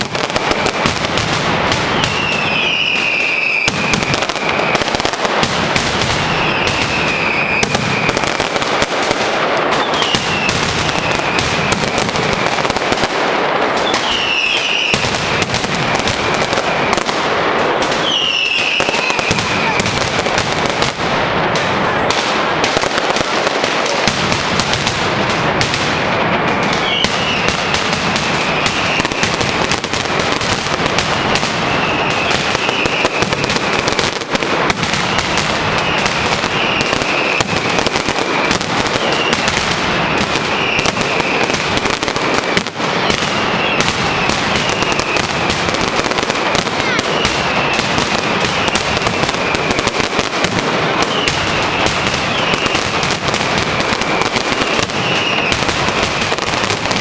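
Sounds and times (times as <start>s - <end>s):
firecrackers rapid bangs: 0.0s - 57.0s
falling whistle: 1.9s - 4.8s, 6.2s - 8.2s, 9.8s - 11.4s, 13.8s - 15.1s, 18.0s - 19.8s, 26.8s - 27.7s, 28.4s - 29.2s, 31.1s - 33.2s, 35.0s - 37.5s, 39.0s - 41.5s, 43.0s - 45.2s, 51.0s - 53.0s, 54.1s - 55.8s.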